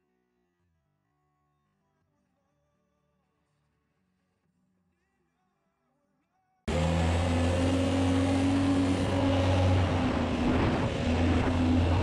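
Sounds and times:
boat engine running: 0:06.7 - 0:12.0
water rushing: 0:06.7 - 0:12.0.

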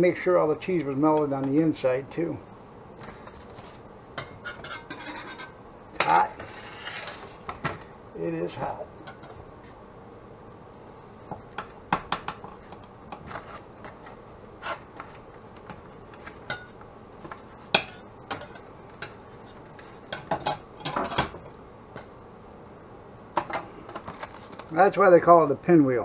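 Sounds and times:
metal spatula scraping plates: 0:03.3 - 0:07.4.

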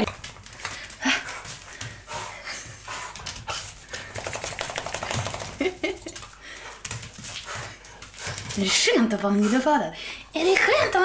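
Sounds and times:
dog panting: 0:00.0 - 0:11.0
dog claws clicking on tiles: 0:02.6 - 0:09.2.

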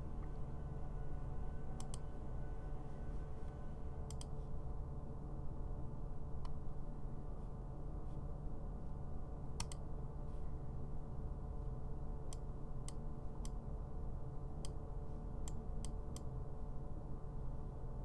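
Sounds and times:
low electrical hum: 0:00.0 - 0:18.0
computer mouse clicking: 0:01.8 - 0:02.0, 0:04.1 - 0:04.3, 0:09.6 - 0:09.8, 0:14.6 - 0:14.8.

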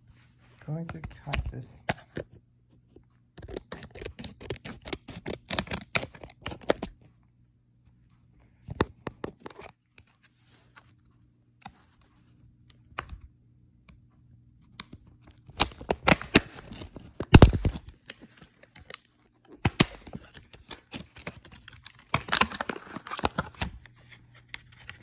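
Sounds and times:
packaging clicks: 0:03.4 - 0:06.9
packaging tearing and crinkling: 0:03.4 - 0:06.9, 0:15.4 - 0:25.0.

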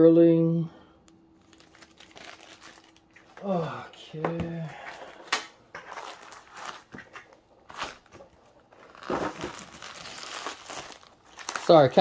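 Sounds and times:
mailer crinkling: 0:01.4 - 0:03.4, 0:05.8 - 0:12.0.

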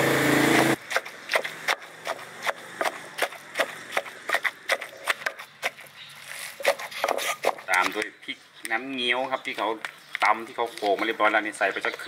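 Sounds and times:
wooden pestle pounding in mortar: 0:00.9 - 0:05.8.

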